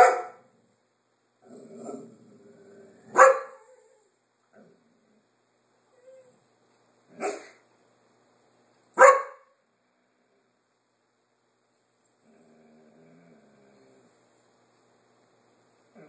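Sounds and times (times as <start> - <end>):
dog barking: 0.0 - 0.4, 3.1 - 3.7, 7.2 - 7.6, 9.0 - 9.6.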